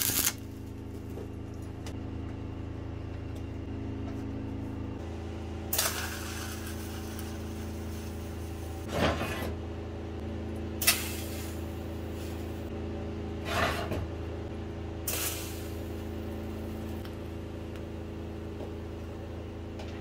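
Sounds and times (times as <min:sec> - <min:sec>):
short noisy welding bursts: 0:00.0 - 0:00.4, 0:05.7 - 0:08.1, 0:10.8 - 0:12.6, 0:15.1 - 0:16.0
welding machine humming: 0:00.0 - 0:08.9, 0:09.6 - 0:13.3, 0:14.2 - 0:19.8.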